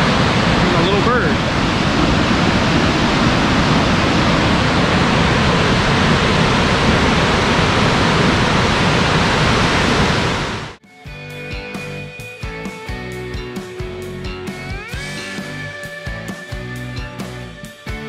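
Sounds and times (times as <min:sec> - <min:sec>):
waterfall roaring: 0:00.0 - 0:10.8.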